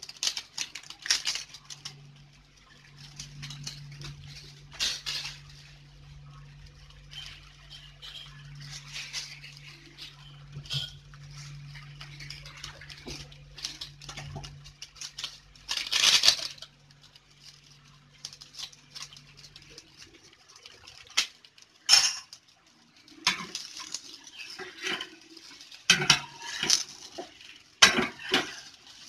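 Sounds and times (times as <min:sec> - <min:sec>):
low steady hum: 0:00.0 - 0:29.0
utensils clinking against a pan: 0:20.7 - 0:22.4, 0:23.0 - 0:29.0.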